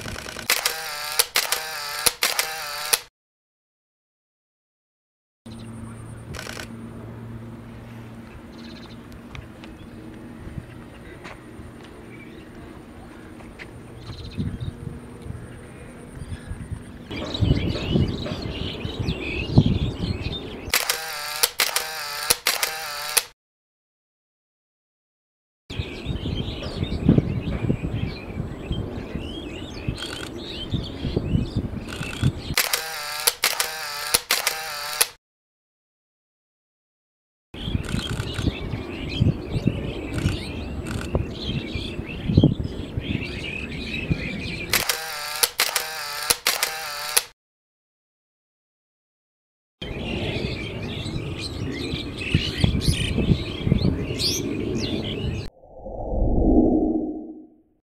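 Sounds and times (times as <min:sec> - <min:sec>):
camera shutter clicks: 0:00.0 - 0:03.1, 0:06.3 - 0:06.7, 0:20.7 - 0:23.3, 0:30.0 - 0:30.3, 0:31.9 - 0:35.2, 0:37.8 - 0:38.5, 0:44.7 - 0:47.3
sharp clicks: 0:00.0 - 0:03.1, 0:06.3 - 0:06.7, 0:20.7 - 0:23.3, 0:31.9 - 0:35.2, 0:44.7 - 0:47.3
small birds chirping: 0:29.2 - 0:33.8, 0:37.6 - 0:45.4
steady low rumble: 0:55.4 - 0:57.5
whoosh sound effect: 0:55.5 - 0:57.5.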